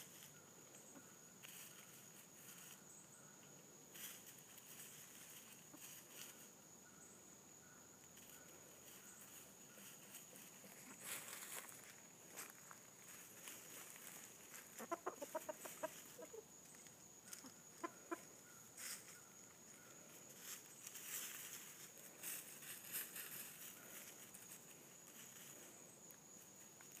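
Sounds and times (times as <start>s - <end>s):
rustling in dry leaf litter: 1.4s - 2.9s, 3.9s - 6.5s, 8.2s - 17.5s, 18.7s - 19.3s, 19.9s - 25.9s
chickens clucking softly: 4.4s - 6.6s, 8.1s - 11.4s, 13.4s - 21.8s.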